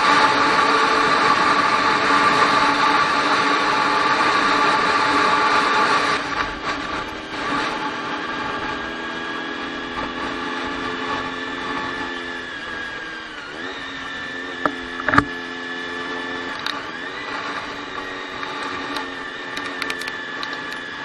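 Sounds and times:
motorcycle engine cruising: 0.0s - 21.0s
sharp knocks: 14.6s - 15.3s.

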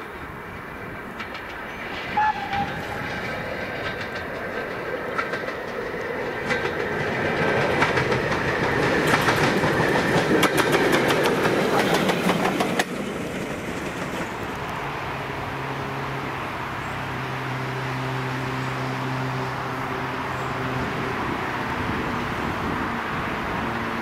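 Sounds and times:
steam locomotive passing: 0.0s - 24.0s
wheel clicks over rail joints: 1.1s - 14.6s
brief whistle-like tone: 2.1s - 2.8s.

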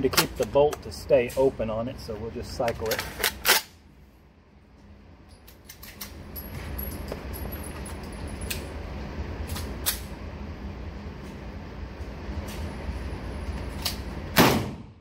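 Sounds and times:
steady low rumble: 6.1s - 15.0s.

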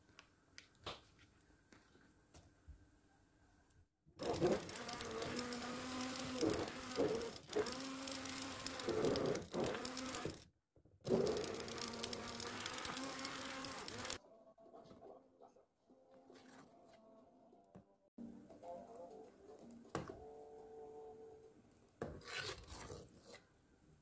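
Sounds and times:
stick blender buzzing: 4.2s - 10.5s, 11.1s - 14.2s.

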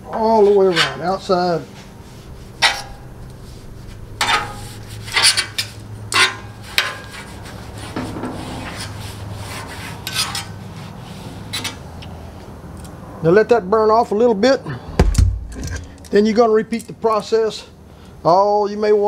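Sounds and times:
paper towel scraping hot griddle: 0.3s - 11.8s.

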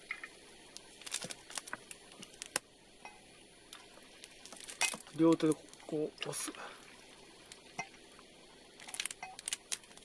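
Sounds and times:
plastic bottle crackling: 0.1s - 2.6s, 3.7s - 7.9s, 8.8s - 10.0s.

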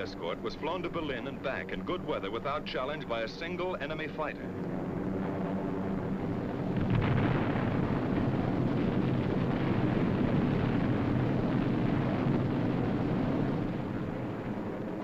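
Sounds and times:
heavy rumbling detonations: 0.0s - 15.0s
bomb explosions: 6.0s - 14.8s.

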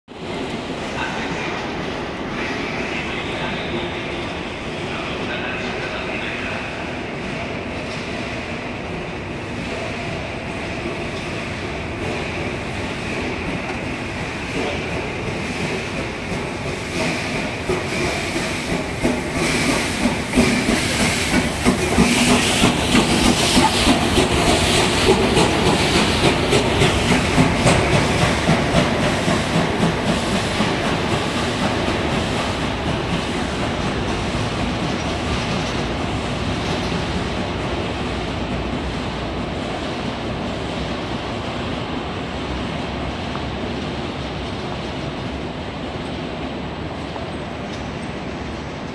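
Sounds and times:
train rumble: 0.1s - 48.9s
steam locomotive hissing: 0.2s - 42.1s
train wheels clacking over rail joints: 9.6s - 40.5s.

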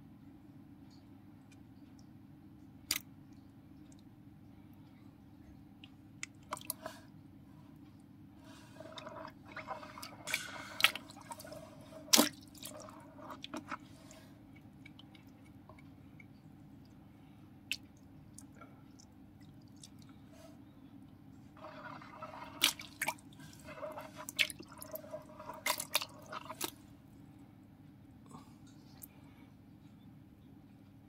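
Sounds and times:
water splashing in a tub: 8.4s - 15.8s, 21.6s - 26.8s.

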